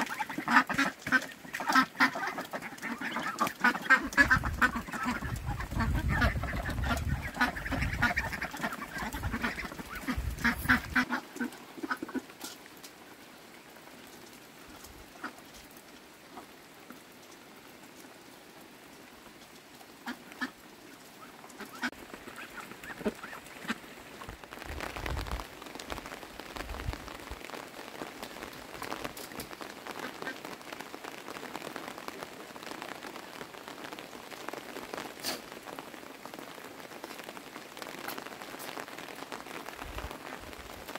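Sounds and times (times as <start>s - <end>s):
ducks quacking: 0.0s - 12.4s, 20.0s - 20.6s, 21.2s - 24.2s.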